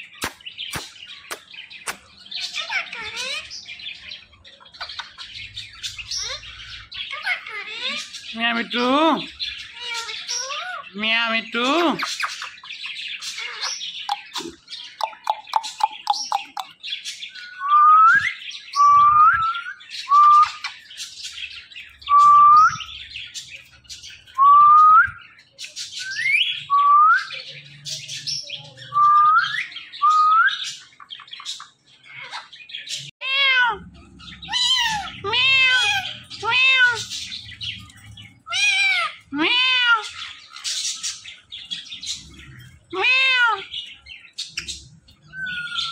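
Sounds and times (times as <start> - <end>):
parakeet squawking and chirping: 0.0 - 17.6, 27.4 - 45.9
parakeet whistled calls: 45.3 - 45.9.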